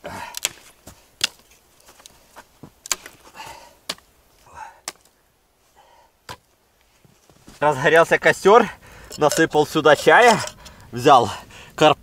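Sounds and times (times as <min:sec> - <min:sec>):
dry branches snapping: 0:00.0 - 0:04.1, 0:04.8 - 0:05.2
rustling: 0:00.4 - 0:07.8.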